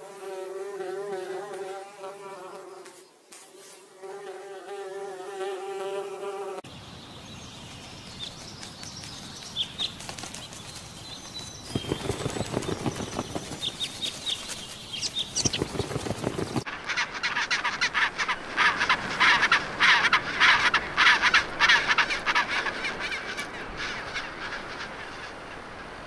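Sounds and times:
low fluttering: 8.4 - 16.9.

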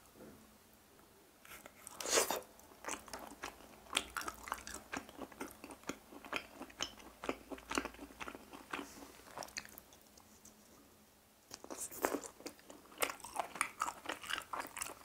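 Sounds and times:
chewing clicks and smacks: 11.5 - 15.0.

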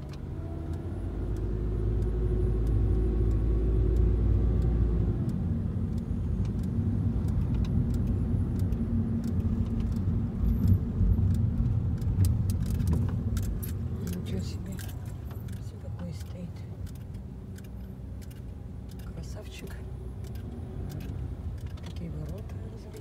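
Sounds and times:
very deep drone: 0.0 - 16.2
car engine and tyre rumble: 0.0 - 23.0
light rattling clicks: 0.0 - 23.0.

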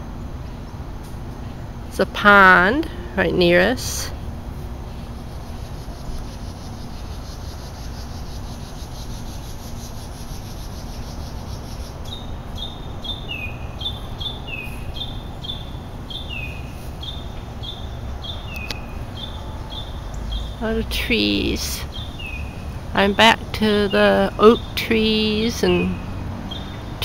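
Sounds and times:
low outdoor rumble: 0.0 - 27.0
songbird chirping: 0.0 - 27.0.

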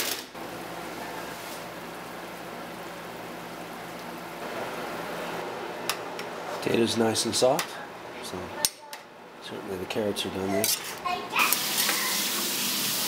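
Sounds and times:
hot food sizzling: 0.4 - 6.7, 11.4 - 13.0.

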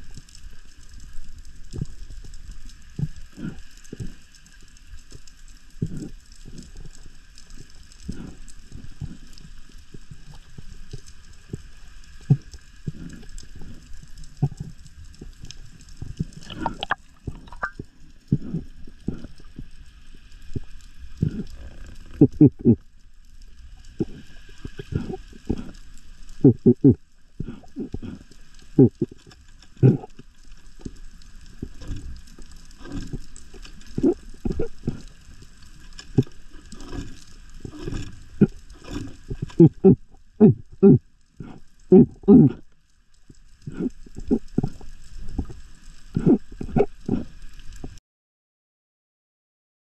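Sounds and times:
underwater thumps and swishes: 1.0 - 19.8, 23.7 - 42.6, 43.5 - 48.0
muffled underwater thumps and knocks: 16.0 - 19.3.

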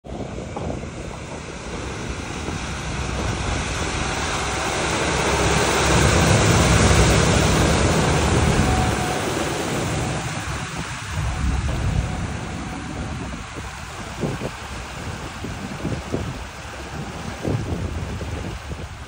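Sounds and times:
vehicle splashing through floodwater: 0.1 - 19.0.

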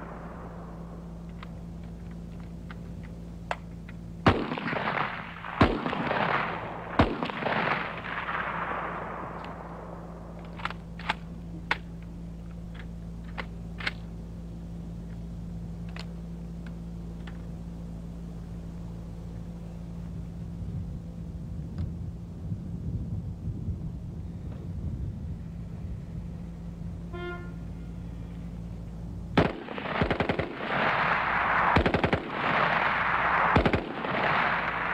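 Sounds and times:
rifle shots echoing: 0.0 - 2.5, 4.2 - 12.0, 29.4 - 34.9
steady low hum: 0.0 - 34.9
faint distant gunshot cracks: 4.2 - 11.2, 29.4 - 34.9.

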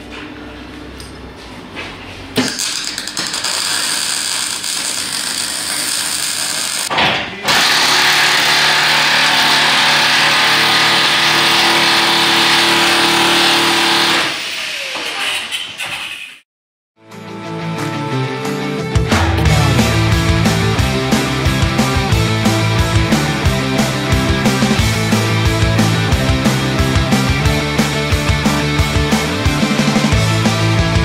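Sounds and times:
welder crackling and hissing: 2.6 - 6.9.

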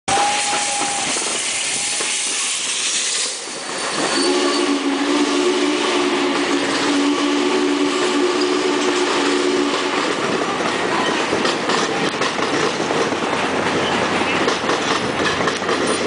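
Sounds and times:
steam hissing: 0.1 - 10.1.

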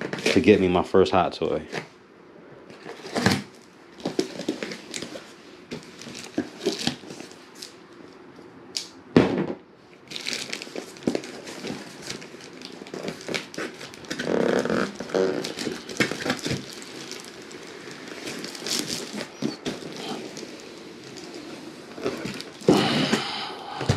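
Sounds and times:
cardboard and plastic rustling: 0.0 - 0.6, 2.7 - 8.3, 10.0 - 23.9
cardboard tearing: 2.8 - 7.7, 10.1 - 23.0.

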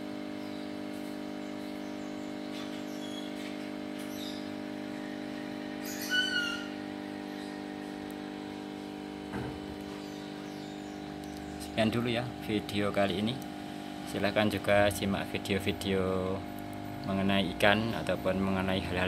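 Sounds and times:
mechanical hum: 0.0 - 19.0
faint bird chirps: 1.4 - 5.2, 5.8 - 7.7, 9.9 - 11.8
short bird call: 5.8 - 6.8.

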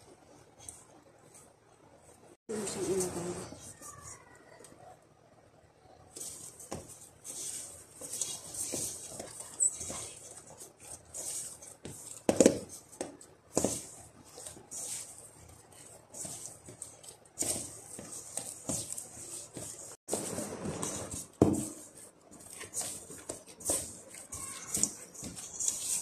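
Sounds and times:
dough squelching and slapping: 6.1 - 26.0
plastic glove rustling: 6.1 - 26.0.

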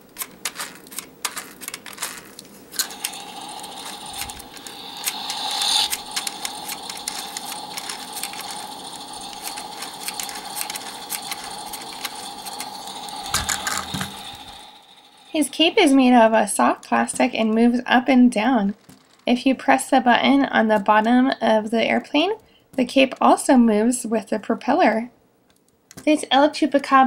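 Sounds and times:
plastic clicks: 0.0 - 14.4
toy motor whirring: 0.0 - 16.2
propeller clicking rapidly: 2.8 - 14.8.

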